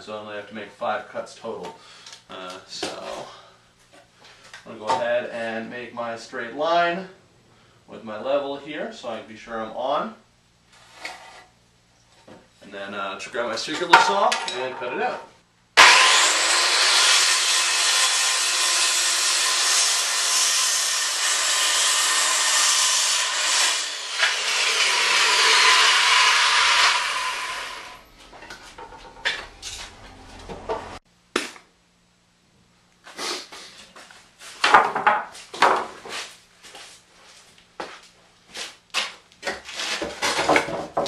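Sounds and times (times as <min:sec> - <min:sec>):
circular saw cutting wood: 0:15.8 - 0:28.1
knocks and clatter: 0:28.4 - 0:31.0.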